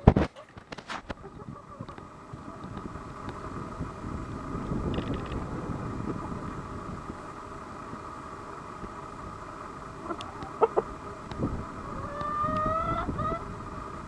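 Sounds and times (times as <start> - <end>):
chickens clucking: 0.0 - 2.8, 9.9 - 13.5
chicken drawn-out call: 10.0 - 11.0, 11.7 - 13.6.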